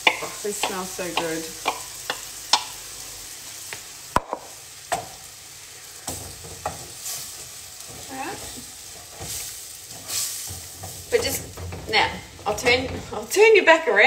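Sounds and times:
spoon knocking against pan: 0.0 - 2.8, 4.2 - 5.2
food sizzling in a frying pan: 0.0 - 14.0
wooden spoon stirring: 6.0 - 13.5.

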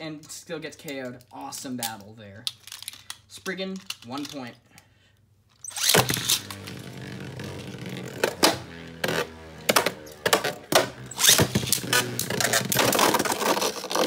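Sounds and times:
spinning tops whirring: 5.6 - 13.6.

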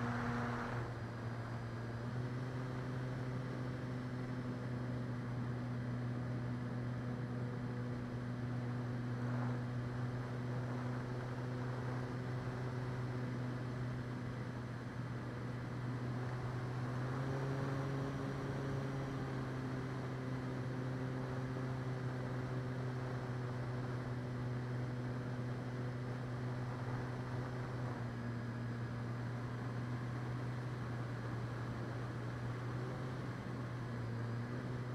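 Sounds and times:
model plane motor drone: 0.0 - 1.0.

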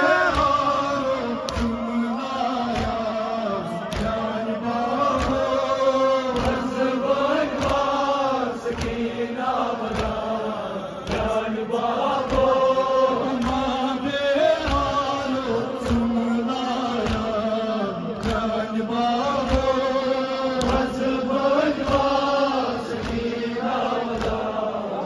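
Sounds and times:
man chanting over loudspeaker: 0.0 - 25.0
chest-beating slaps: 1.4 - 1.8, 5.0 - 5.6.

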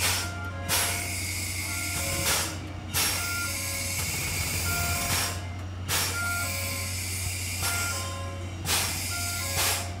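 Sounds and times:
short beeping notes: 3.1 - 7.0
steam hiss: 5.9 - 7.8, 8.7 - 9.9.

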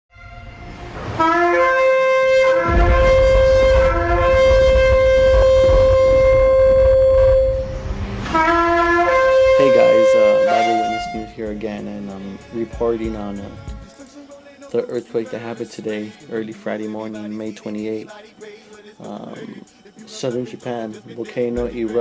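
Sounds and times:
shofar blasts: 0.1 - 11.6
low rumble: 2.6 - 9.7.

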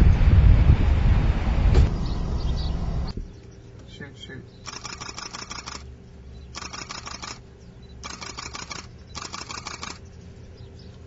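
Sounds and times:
camera shutters clicking: 4.7 - 5.8, 6.6 - 7.4, 8.0 - 10.0.

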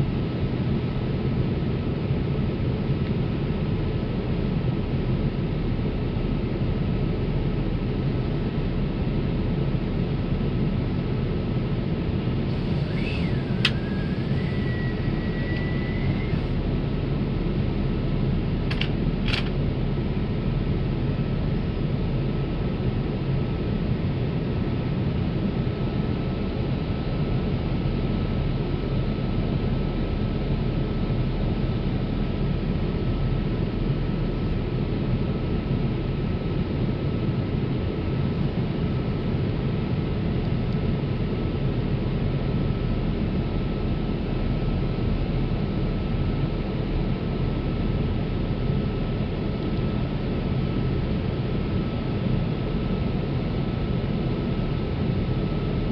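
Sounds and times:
airplane cabin rushing noise: 12.5 - 16.7
faint whistling tone: 12.6 - 16.6.

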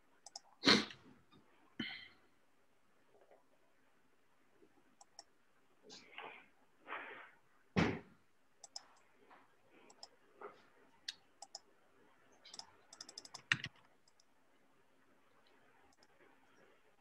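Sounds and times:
mouse and keyboard clicks: 0.2 - 0.5, 5.0 - 5.3, 8.6 - 9.1, 9.9 - 10.2, 11.1 - 11.6, 12.4 - 14.3.

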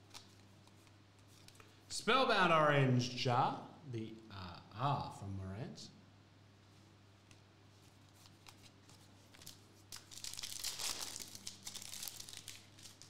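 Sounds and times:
foil wrapper tearing and crinkling: 9.3 - 13.0.

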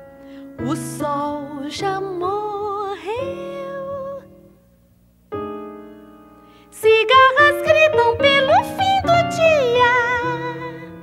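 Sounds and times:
woman singing wordless notes: 0.6 - 4.6, 6.7 - 11.0.

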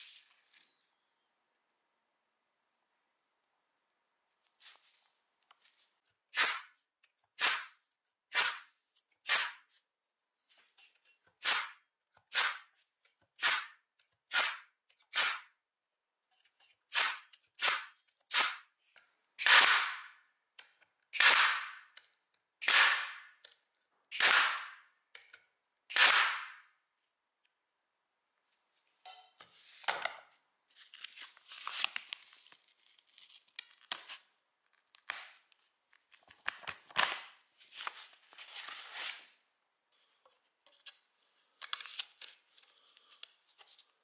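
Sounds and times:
air stapler firing: 19.4 - 20.1, 21.2 - 21.9, 22.6 - 23.3, 24.1 - 24.8, 25.9 - 26.6.

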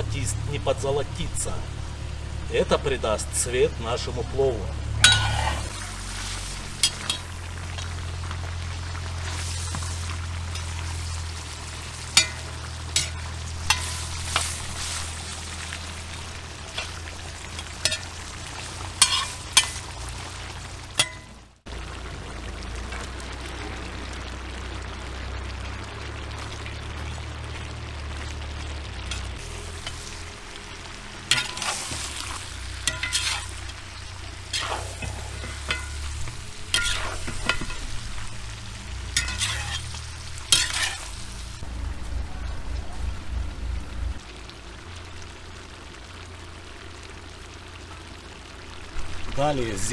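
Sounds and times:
food sizzling in a pot: 0.0 - 49.9
metal skimmer scraping a pot: 19.0 - 19.9, 32.8 - 33.6, 34.5 - 36.0, 39.2 - 40.0.

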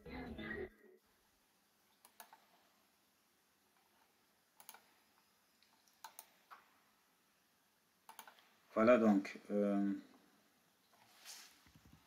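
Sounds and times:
faint computer mouse clicks: 2.0 - 2.6, 4.6 - 5.0, 5.6 - 6.7, 8.1 - 8.5.

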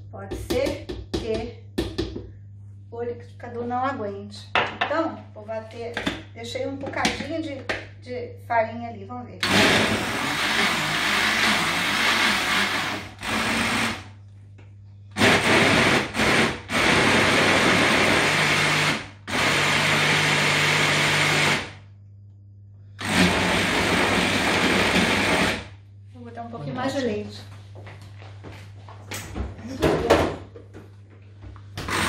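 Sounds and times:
blender running: 9.4 - 14.1, 15.2 - 21.8, 23.0 - 25.8, 31.8 - 32.0.

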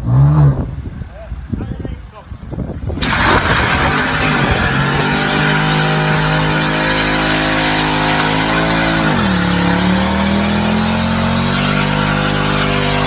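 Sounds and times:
car engine at high revs: 2.9 - 13.0
tyres spinning on road: 2.9 - 13.0.

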